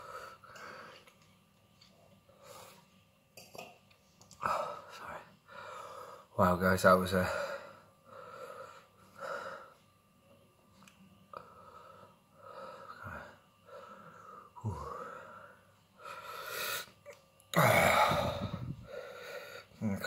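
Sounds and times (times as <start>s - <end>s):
man breathing hard: 0.0s - 1.1s, 4.4s - 6.3s, 7.2s - 9.8s, 11.4s - 17.0s, 17.6s - 19.8s.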